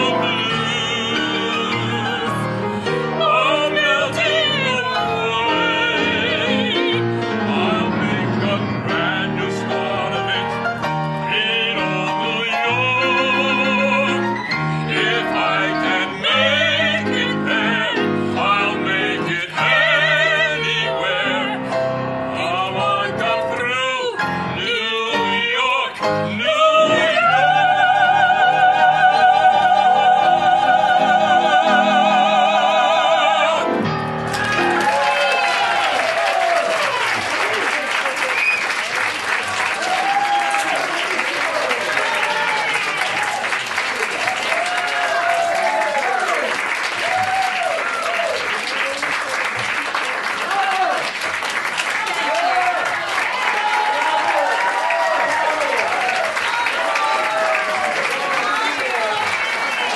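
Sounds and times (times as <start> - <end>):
operatic duet singing: 0.0 - 37.0
piano accompaniment: 0.0 - 59.9.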